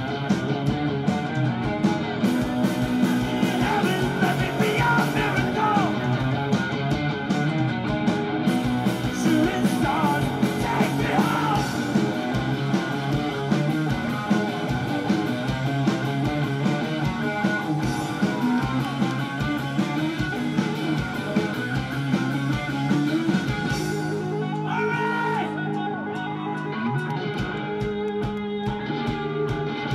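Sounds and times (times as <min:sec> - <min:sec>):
drums: 0:00.0 - 0:29.9
electric guitars: 0:00.0 - 0:29.9
strummed electric guitar: 0:00.0 - 0:29.9
person singing: 0:03.3 - 0:06.1, 0:09.2 - 0:11.9.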